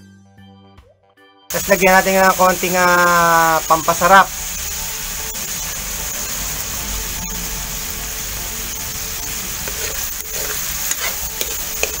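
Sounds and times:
pork and onions sizzling in wok: 0:01.5 - 0:12.0
spatula scraping wok: 0:04.1 - 0:12.0.

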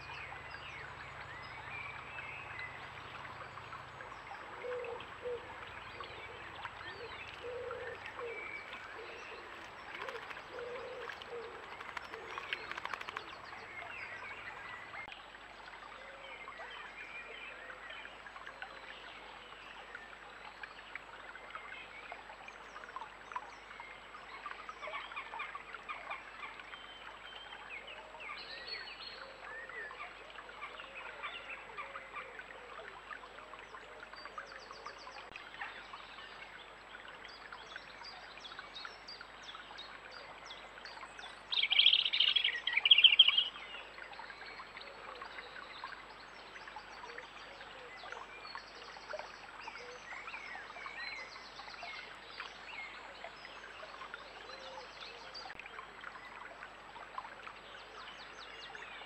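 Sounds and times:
small birds singing: 0:00.0 - 0:15.2, 0:34.0 - 0:56.4
shallow stream running: 0:00.0 - 0:59.0.

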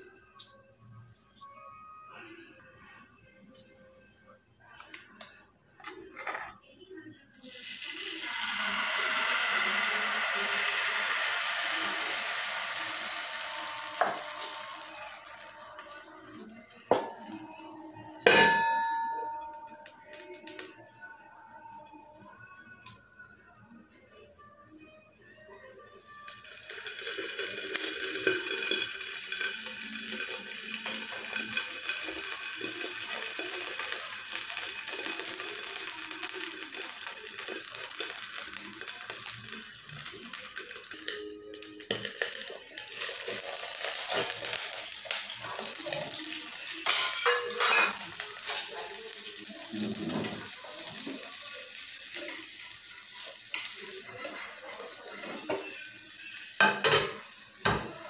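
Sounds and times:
pancake sizzling in frying pan: 0:07.4 - 0:18.2, 0:25.9 - 0:58.0
metal bowl and spatula clinking: 0:46.8 - 0:48.8.

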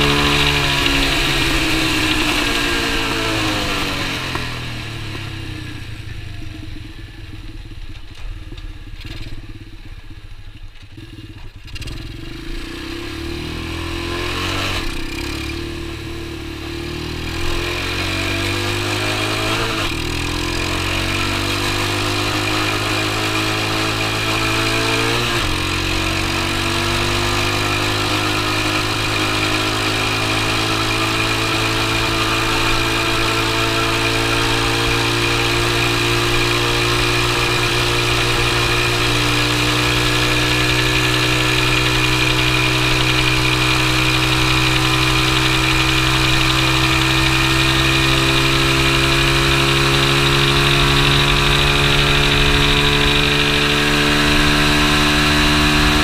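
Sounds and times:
small motorbike engine accelerating: 0:00.0 - 0:56.0.

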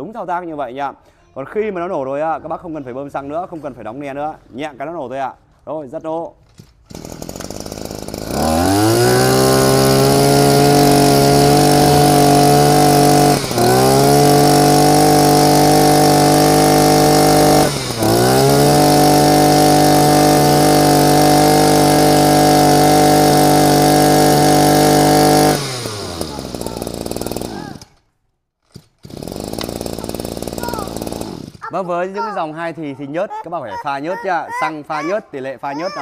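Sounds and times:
brush cutter engine revving: 0:06.8 - 0:28.0, 0:28.7 - 0:31.8.

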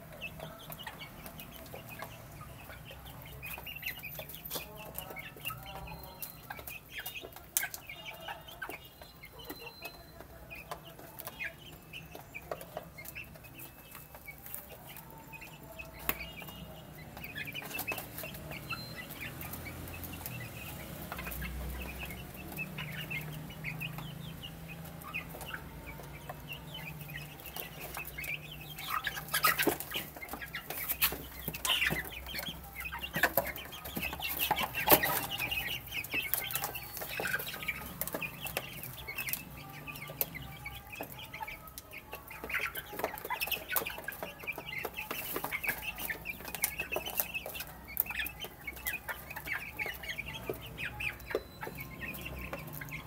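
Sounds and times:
baby chicks peeping: 0:00.0 - 0:53.0.

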